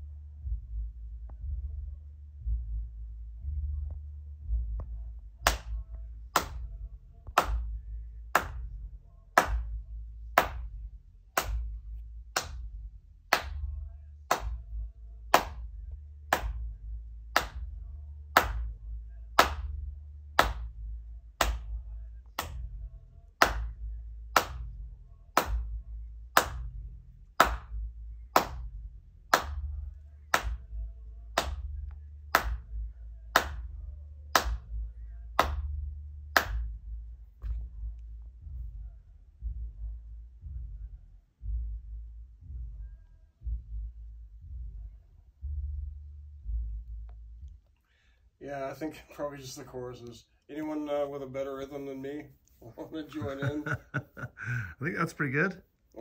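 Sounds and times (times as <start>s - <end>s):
faint low rumble: 0.0s - 56.0s
person clapping hands: 5.4s - 8.7s, 9.4s - 9.8s, 10.4s - 10.7s, 11.4s - 11.7s, 12.3s - 12.7s, 13.3s - 14.6s, 15.3s - 15.7s, 16.3s - 16.7s, 17.3s - 17.7s, 18.3s - 18.8s, 19.4s - 19.8s, 20.4s - 20.7s, 21.4s - 22.7s, 23.4s - 24.7s, 25.4s - 26.7s, 27.4s - 28.7s, 29.3s - 29.7s, 30.3s - 30.7s, 31.4s - 31.7s, 32.3s - 34.8s, 35.4s - 35.7s, 36.4s - 36.8s, 53.2s - 54.8s.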